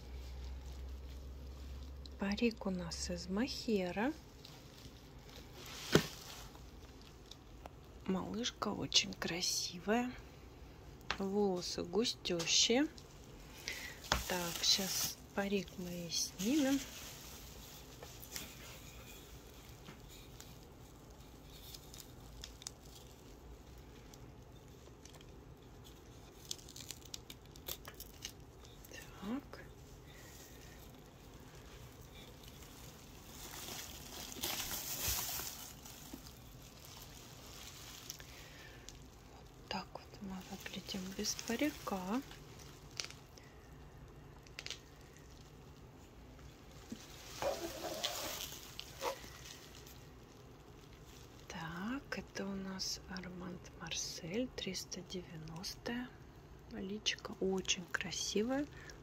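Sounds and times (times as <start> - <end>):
room hum: 0.0 - 59.0
doll head handling: 4.2 - 7.8, 13.8 - 15.3, 29.7 - 39.6, 45.9 - 51.2
faint crackling and clicks: 19.7 - 51.6.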